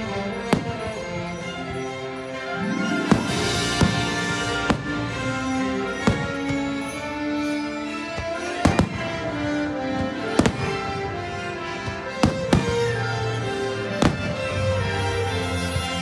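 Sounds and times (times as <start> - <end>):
music: 0.0 - 16.0
fireworks bangs: 2.9 - 6.9, 8.2 - 9.3, 10.0 - 11.1, 14.0 - 14.6.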